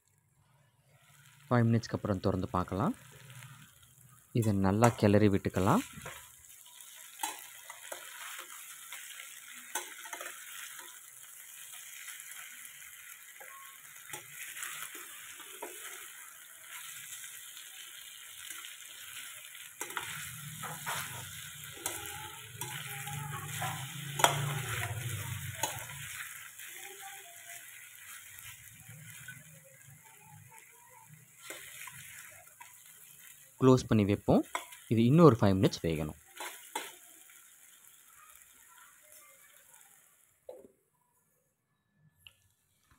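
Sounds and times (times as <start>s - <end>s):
chicken sizzling in oil: 0.8s - 40.6s
spatula scraping a pan: 5.8s - 33.4s.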